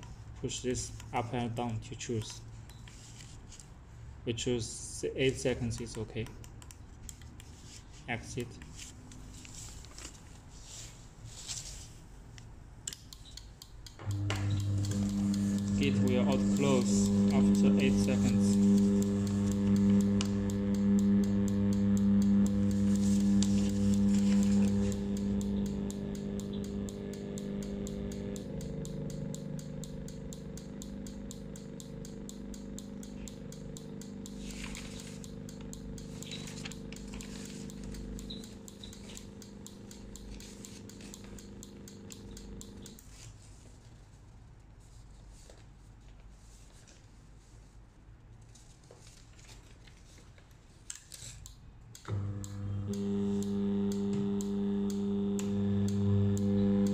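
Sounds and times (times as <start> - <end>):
gate actuator motor hum: 13.9 - 43.1, 52.0 - 56.9.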